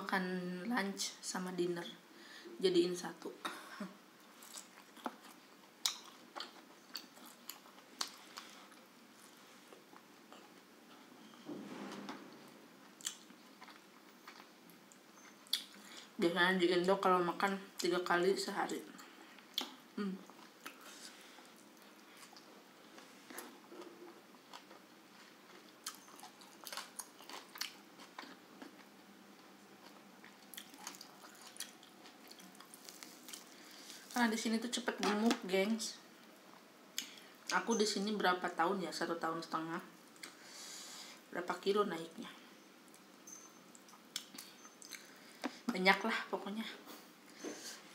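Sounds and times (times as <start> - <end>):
person chewing food: 4.2 - 10.6, 12.8 - 16.1, 19.0 - 34.2, 43.7 - 45.6.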